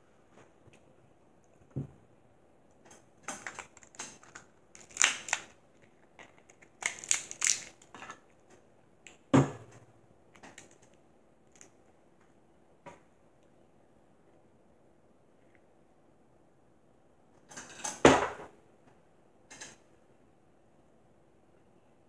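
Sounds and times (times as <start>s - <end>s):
crab shells cracking: 3.2s - 8.2s.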